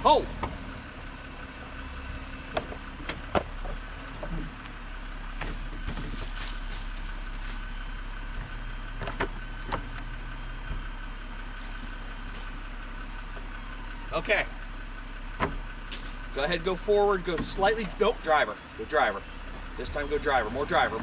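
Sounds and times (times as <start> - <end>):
car engine idling: 0.0 - 21.0
sharp knocks and clicks of gear: 2.4 - 4.8, 5.4 - 10.9, 15.4 - 16.3, 17.1 - 18.0.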